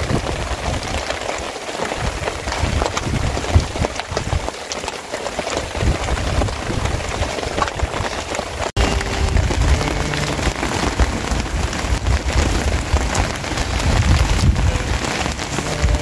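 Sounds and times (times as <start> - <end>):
rain pattering: 0.0 - 16.0
low rumble: 8.8 - 16.0.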